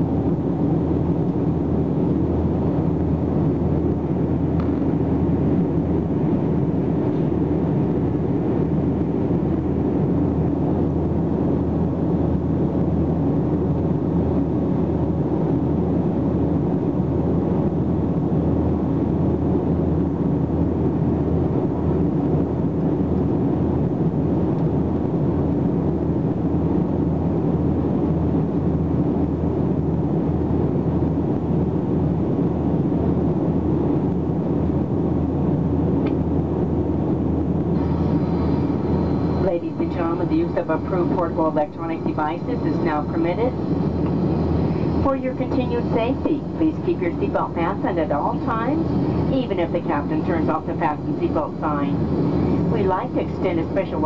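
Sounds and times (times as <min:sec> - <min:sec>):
jet engines droning: 0:00.0 - 0:54.0
rush of air: 0:37.6 - 0:40.3, 0:42.6 - 0:45.2, 0:48.4 - 0:52.8.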